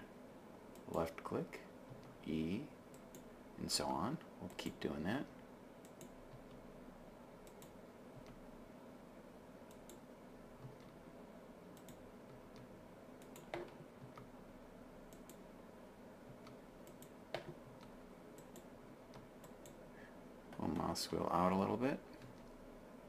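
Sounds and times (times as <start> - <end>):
faint steady hum: 0.0 - 23.0
keyboard and mouse clicks: 7.4 - 8.4, 9.7 - 10.0, 10.6 - 11.0, 11.8 - 14.3, 15.1 - 15.4, 16.3 - 19.8, 22.1 - 22.6.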